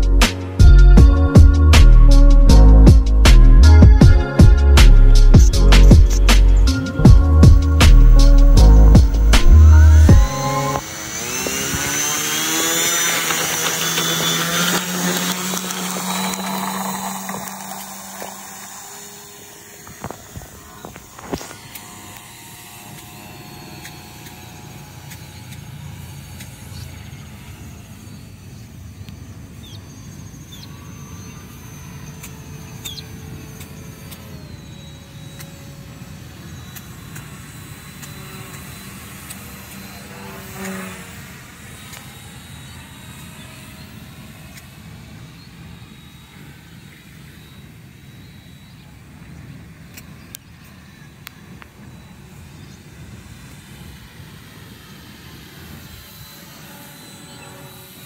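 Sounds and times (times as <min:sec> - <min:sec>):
distant whine of model plane motor: 0:00.0 - 0:58.0.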